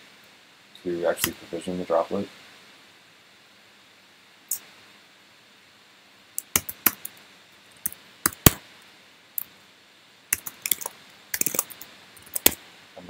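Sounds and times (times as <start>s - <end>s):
keyboard typing clicks: 6.4s - 7.1s, 7.8s - 8.6s, 10.4s - 12.6s.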